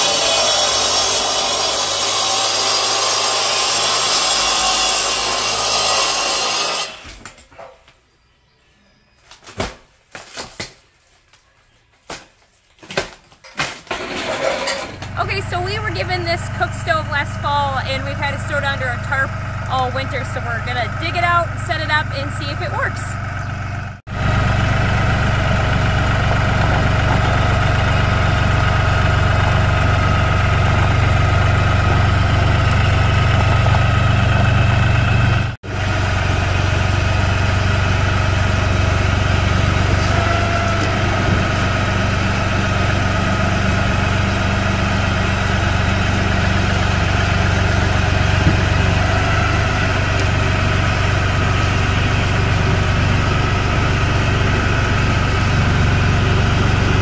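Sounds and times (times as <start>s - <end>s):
tractor diesel engine running: 14.2s - 57.0s.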